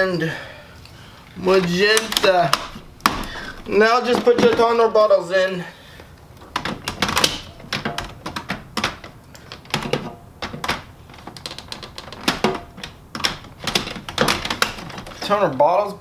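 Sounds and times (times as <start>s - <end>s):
plastic clicks and knocks: 6.4s - 15.2s.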